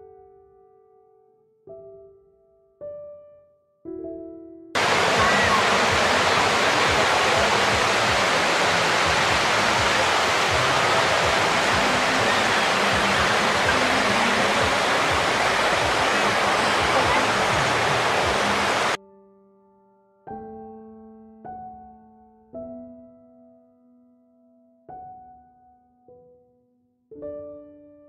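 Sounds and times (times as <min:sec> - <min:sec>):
river water rushing over rocks: 0:04.8 - 0:19.0.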